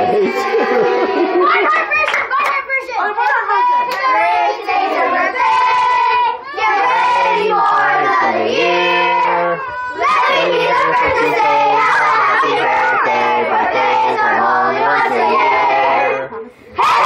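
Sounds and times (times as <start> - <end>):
children singing together: 0.0 - 1.9, 3.1 - 17.0.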